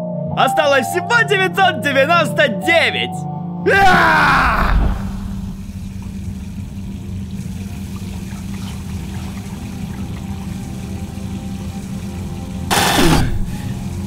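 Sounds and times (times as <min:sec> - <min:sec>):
steady low hum: 0:04.9 - 0:13.5
tap water running over hands: 0:05.8 - 0:14.0.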